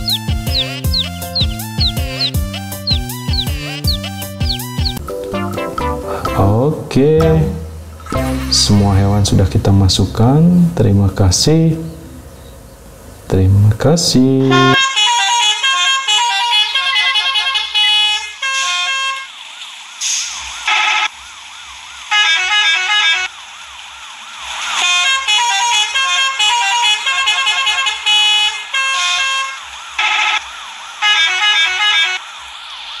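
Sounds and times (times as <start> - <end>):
low drum beat: 0.0 - 5.2
electronic synth tune: 0.0 - 6.6, 7.2 - 9.5, 14.4 - 14.8.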